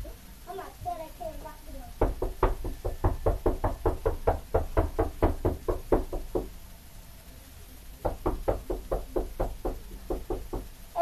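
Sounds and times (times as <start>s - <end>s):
rapid even knocking: 2.0s - 6.6s, 8.0s - 10.7s.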